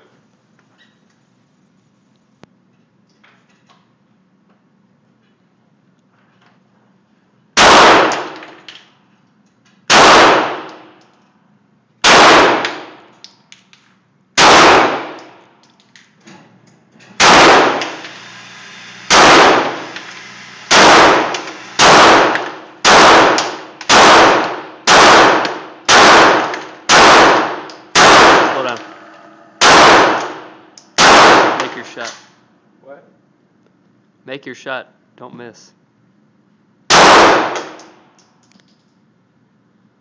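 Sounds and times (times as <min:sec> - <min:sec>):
pistol shots echoing indoors: 0:07.6 - 0:08.8, 0:09.8 - 0:11.1, 0:12.0 - 0:15.6, 0:17.2 - 0:18.1, 0:19.1 - 0:20.0, 0:20.7 - 0:28.9, 0:29.6 - 0:32.3, 0:36.9 - 0:38.4.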